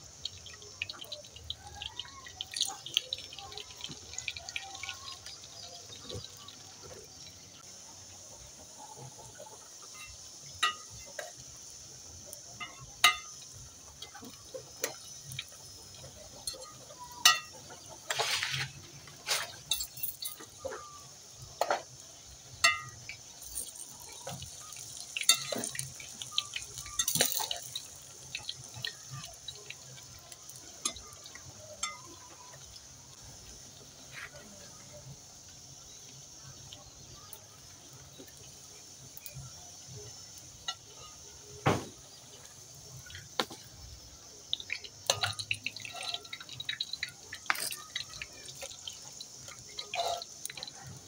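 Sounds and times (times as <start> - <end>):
oil sizzling: 0.0 - 51.0
sharp pops and clinks: 9.4 - 32.6, 36.8 - 51.0.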